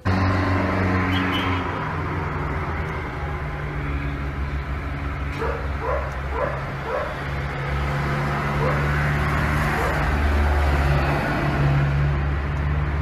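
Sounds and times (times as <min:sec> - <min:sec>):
dog yipping: 0:05.4 - 0:07.2.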